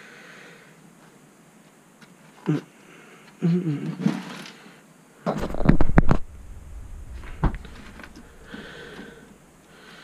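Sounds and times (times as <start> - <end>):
low thud: 5.3 - 9.5.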